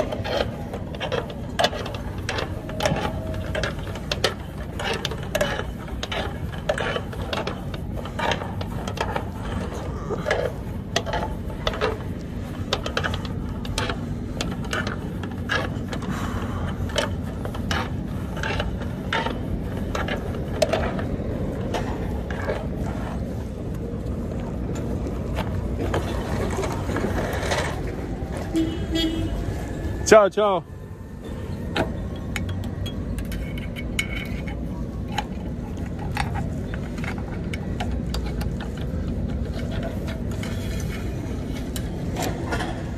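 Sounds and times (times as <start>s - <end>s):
metal cable clicking and rattling: 0.0s - 27.8s, 31.7s - 42.9s
steady low rumble: 0.0s - 42.9s.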